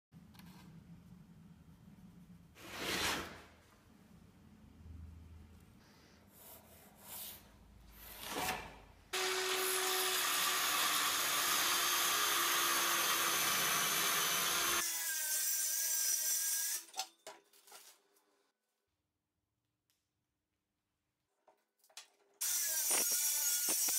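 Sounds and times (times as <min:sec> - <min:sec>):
circular saw cutting board: 0:09.2 - 0:16.8, 0:22.4 - 0:23.9.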